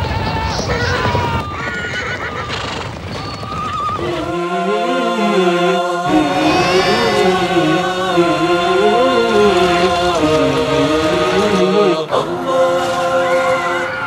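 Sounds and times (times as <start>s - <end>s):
clatter of hooves: 0.0s - 4.4s
horses neighing: 0.1s - 4.4s, 6.0s - 12.2s
chanted vocal with music: 4.0s - 14.0s.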